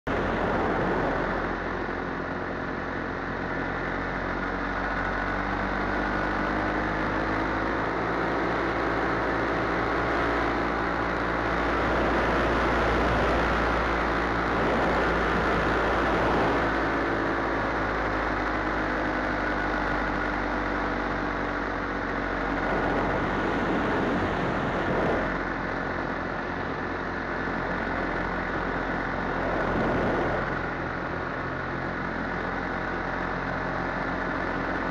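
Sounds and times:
paramotor engine and propeller: 0.0 - 34.9
rush of air: 22.4 - 25.7, 29.1 - 30.8.

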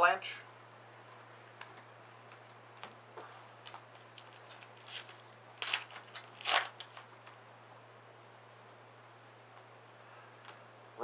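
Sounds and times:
foil wrapper tearing and crinkling: 3.6 - 7.1.

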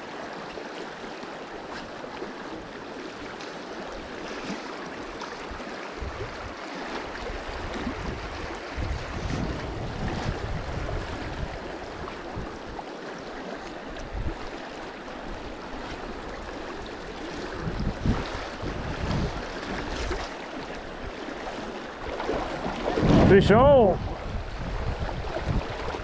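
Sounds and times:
river water rushing over stones: 0.0 - 23.9
wind buffeting microphone: 5.4 - 12.8, 14.0 - 14.6, 15.3 - 20.3, 22.3 - 26.0.

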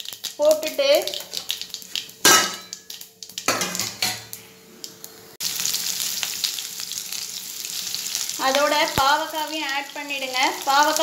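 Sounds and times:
vegetables sizzling in hot oil: 0.0 - 11.0
metal utensils clanking on a pan: 2.2 - 2.9, 3.5 - 4.3.

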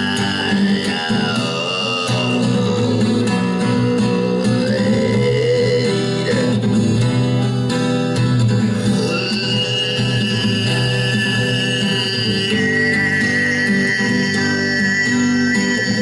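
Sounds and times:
acoustic guitar solo: 0.0 - 16.0
high gliding held tone: 8.8 - 16.0.

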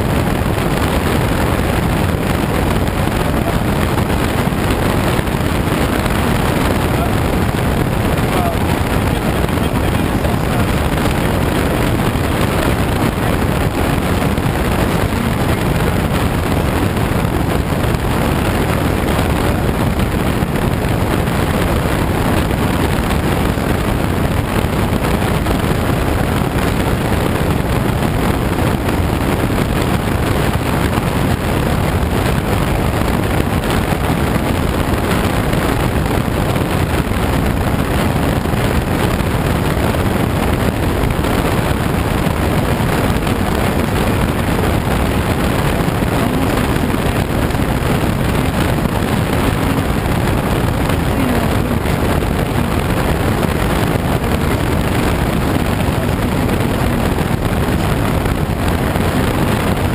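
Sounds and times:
air rushing over glider: 0.0 - 59.9.

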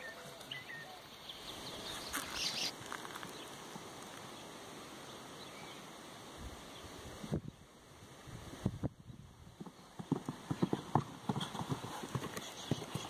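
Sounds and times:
bird chirps: 0.0 - 3.5
horse hoofbeats: 9.5 - 13.0.

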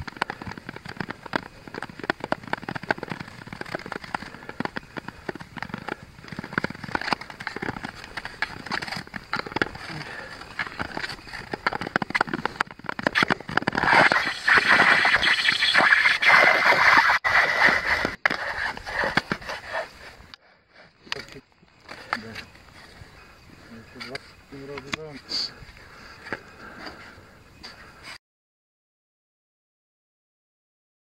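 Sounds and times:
ice crackling: 0.0 - 20.3
skate blades scraping ice: 0.0 - 20.3.

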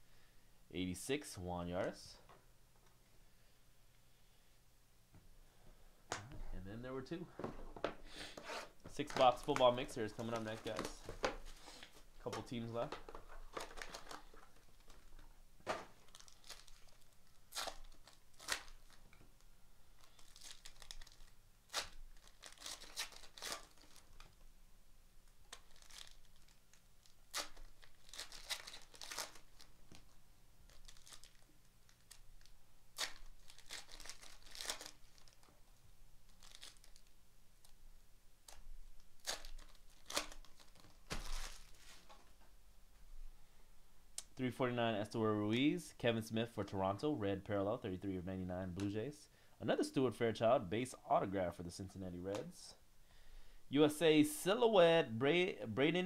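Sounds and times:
foil wrappers tearing and crinkling: 13.4 - 15.3, 16.0 - 19.1, 20.0 - 24.3, 25.5 - 30.1, 30.7 - 35.5, 36.3 - 37.1, 38.5 - 41.8.

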